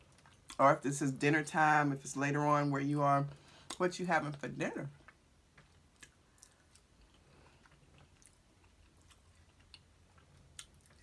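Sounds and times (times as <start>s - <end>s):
person chewing food: 0.0s - 0.6s, 5.0s - 11.0s.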